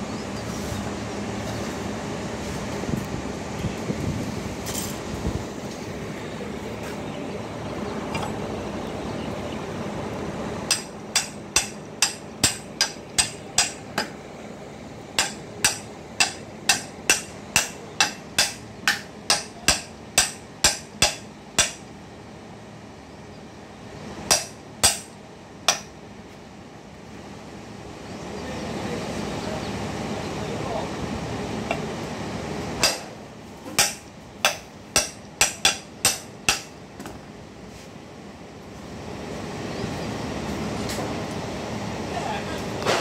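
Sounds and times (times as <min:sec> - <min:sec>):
hammer tapping metal: 0:10.7 - 0:14.2, 0:15.2 - 0:21.8, 0:24.3 - 0:25.1, 0:25.7 - 0:25.9, 0:32.8 - 0:33.1, 0:33.7 - 0:36.7.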